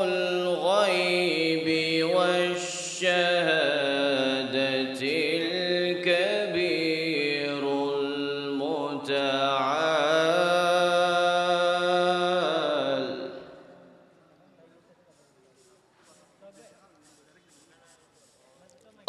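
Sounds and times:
man reciting melodically: 0.0 - 14.0.

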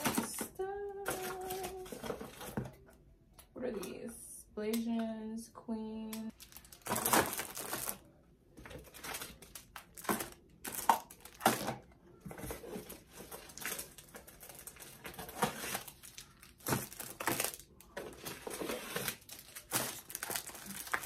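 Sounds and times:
plastic packaging crinkling: 1.0 - 2.6, 6.3 - 11.8, 12.4 - 21.0.

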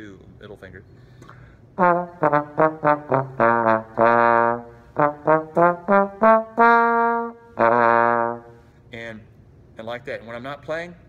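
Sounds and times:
trombone notes: 1.8 - 8.7.

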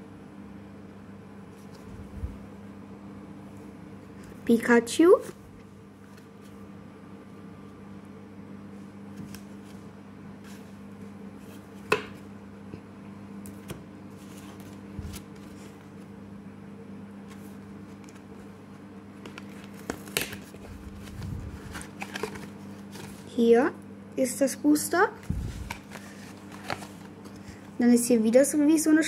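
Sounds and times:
steady low hum: 0.0 - 29.0
cards rustling: 13.5 - 16.0, 19.2 - 23.3, 25.2 - 27.7.

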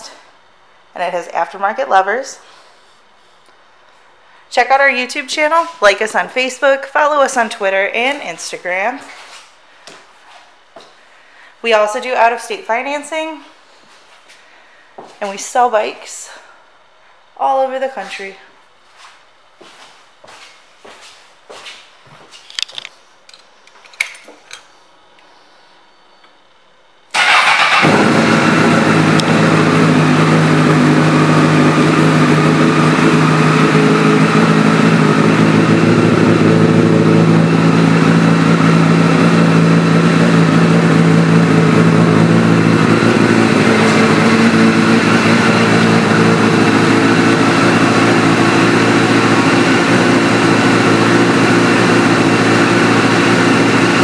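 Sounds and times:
motorcycle engine idling: 27.2 - 54.0.

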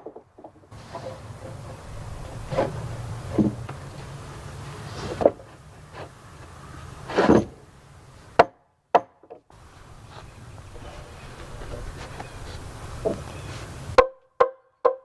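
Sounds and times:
wooden knocks and thuds: 0.0 - 4.2, 5.1 - 5.6, 8.4 - 9.5, 13.0 - 13.4.

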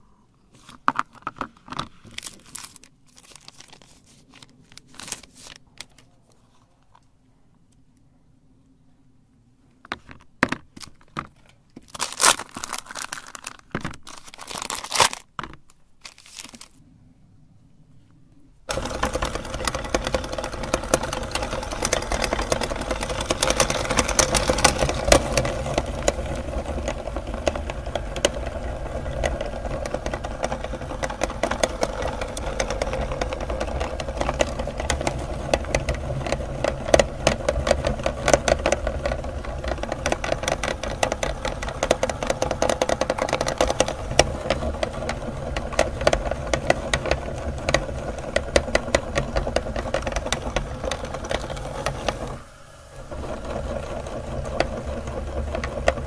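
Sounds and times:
chocolate bars handling clatter: 0.7 - 6.1, 9.9 - 16.8
auger crushing chocolate: 0.8 - 6.0, 9.9 - 16.8, 18.7 - 56.0
meat grinder motor running: 18.7 - 56.0.

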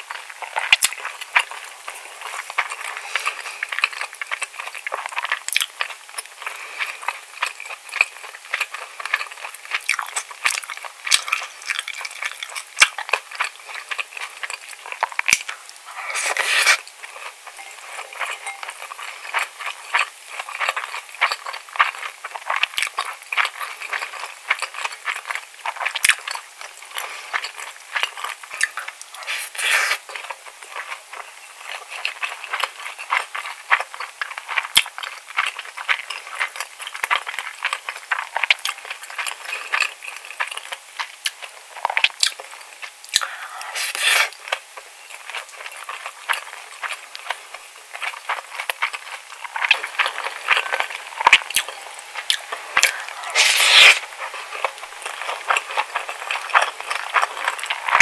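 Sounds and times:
chewing and lip-smacking: 0.0 - 58.0
plastic spoon scraping a bowl: 53.2 - 54.0.

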